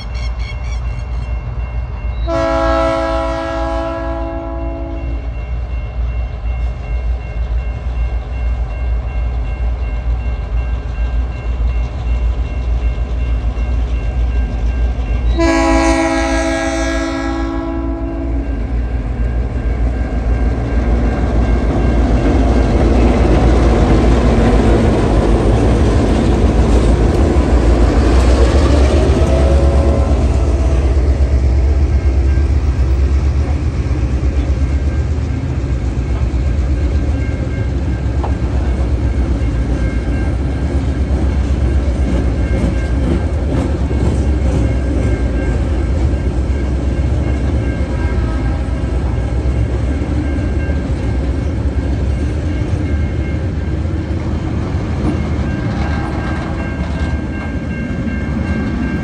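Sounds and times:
train wheel noise: 0:00.0 - 0:59.0
locomotive horn: 0:02.2 - 0:05.3, 0:15.3 - 0:18.6.

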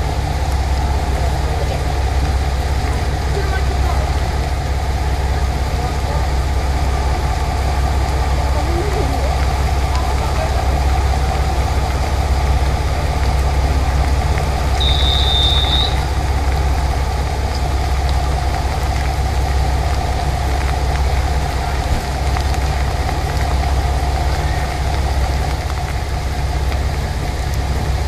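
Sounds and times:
diesel engine idling: 0:00.0 - 0:28.0
heavy rain hissing: 0:00.0 - 0:28.0
short high beep: 0:14.8 - 0:16.0.

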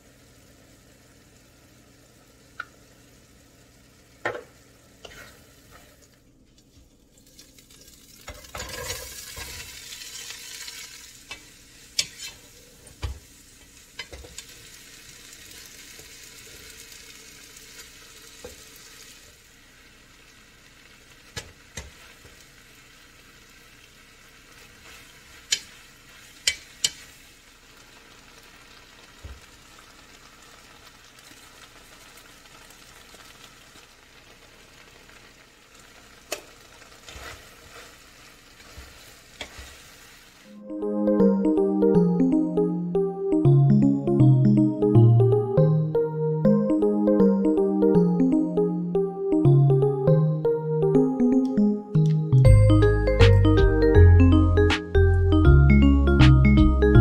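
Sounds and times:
sauce sizzling in a frying pan: 0:00.0 - 0:40.6
wooden spatula scraping a pan: 0:05.0 - 0:06.0, 0:08.4 - 0:13.0, 0:37.0 - 0:40.2.

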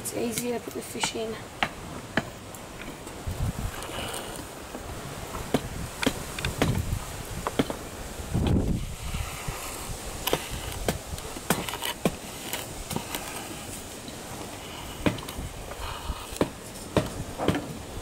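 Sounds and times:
hatchet splitting wood: 0:00.3 - 0:03.0, 0:05.3 - 0:07.8, 0:09.4 - 0:13.7, 0:14.5 - 0:17.8.

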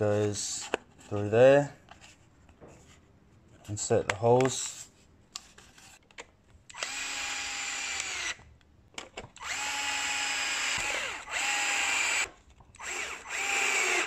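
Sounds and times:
cordless screwdriver motor whine: 0:06.7 - 0:08.4, 0:09.4 - 0:14.0.

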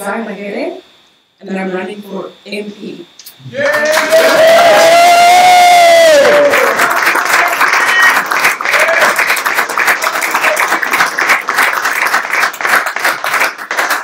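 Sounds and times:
people clapping: 0:03.5 - 0:14.0.

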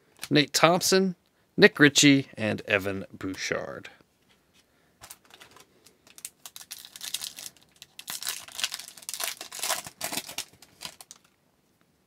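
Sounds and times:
foil wrapper crinkling and tearing: 0:05.0 - 0:11.4.

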